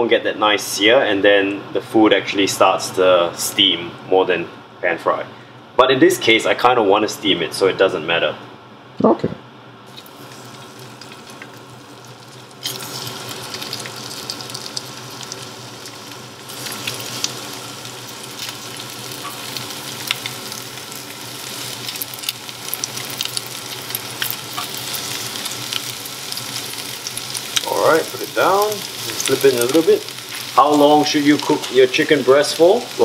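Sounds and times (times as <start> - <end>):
chicken sizzling in hot oil: 9.9 - 33.0.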